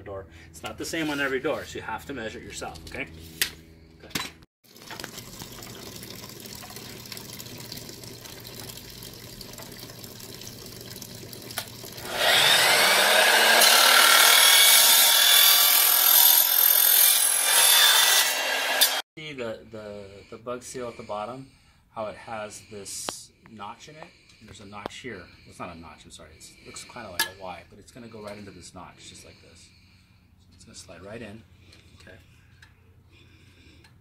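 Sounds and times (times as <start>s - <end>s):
miter saw cutting: 12.0s - 19.0s.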